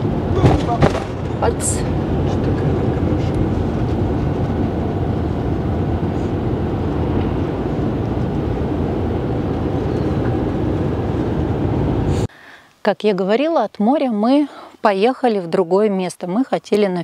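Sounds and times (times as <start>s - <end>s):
engine and tyre rumble: 0.0s - 12.3s.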